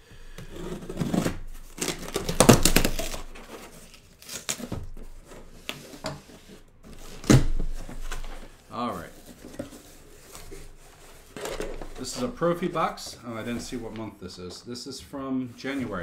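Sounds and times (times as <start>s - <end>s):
packaging crinkling and tearing: 0.4s - 8.6s.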